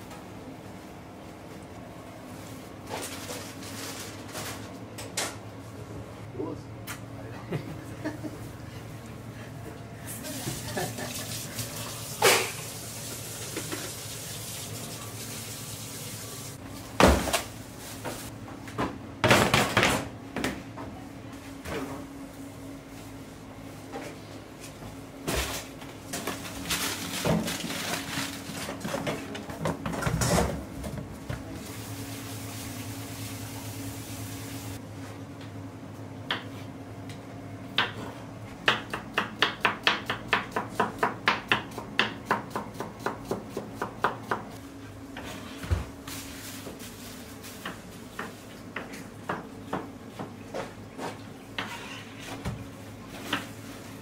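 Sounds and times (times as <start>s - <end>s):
knocks of kitchen work: 13.4s - 14.0s, 16.9s - 20.9s, 27.1s - 31.5s, 37.7s - 44.6s, 47.5s - 53.6s
knife chopping on cutting board: 38.6s - 44.5s.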